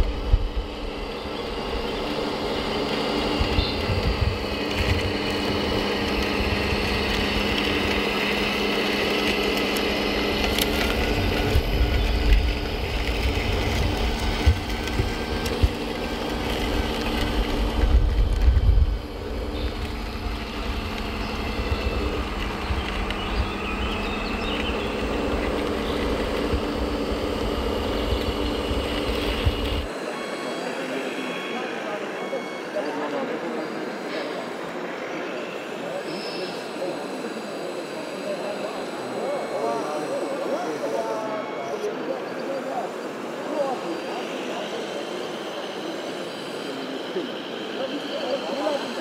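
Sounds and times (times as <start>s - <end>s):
wheels rumbling over gravel: 0.0s - 29.9s
toy truck motor hum: 0.0s - 49.0s.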